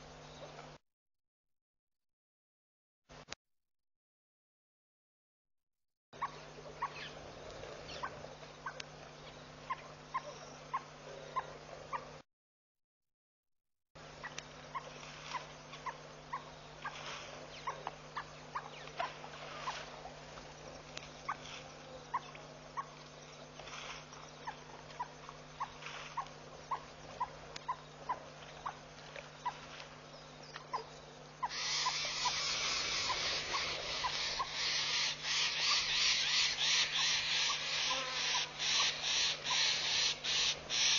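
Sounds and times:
steady low hum: 0:00.0 - 0:00.8, 0:06.2 - 0:12.2, 0:14.0 - 0:40.9
small animal chirping: 0:14.2 - 0:19.9, 0:23.8 - 0:29.7, 0:30.6 - 0:40.9.

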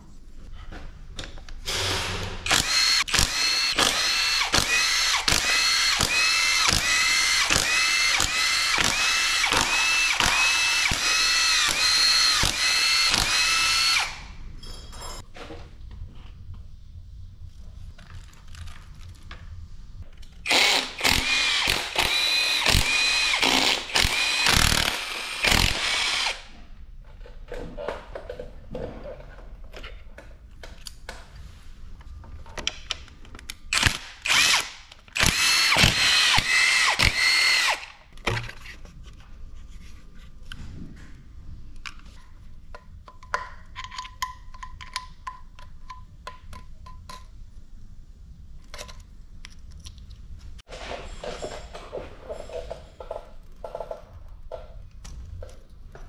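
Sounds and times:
power driver whine: 0:01.7 - 0:14.3.

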